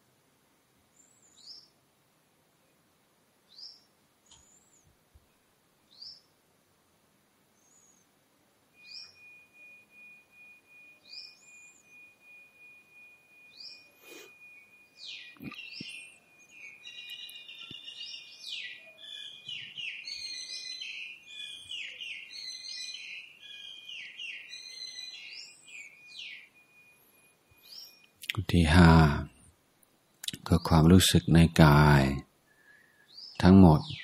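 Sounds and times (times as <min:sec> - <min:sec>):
birds chirping: 0:00.9 - 0:01.8, 0:03.5 - 0:06.4, 0:08.8 - 0:34.0
thin steady high tone: 0:08.7 - 0:29.4.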